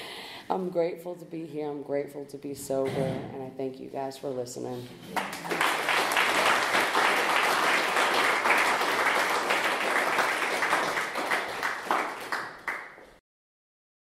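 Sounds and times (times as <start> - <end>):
audience applauding: 5.1 - 13.2.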